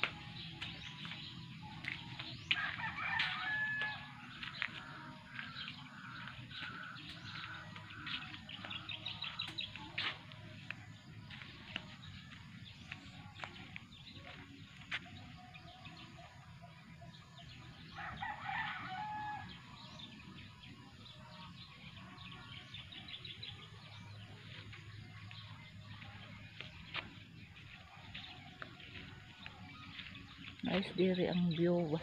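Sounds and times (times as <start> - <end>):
small birds chirping faintly: 0.0 - 32.0
rooster crowing: 2.6 - 4.1, 18.0 - 19.6.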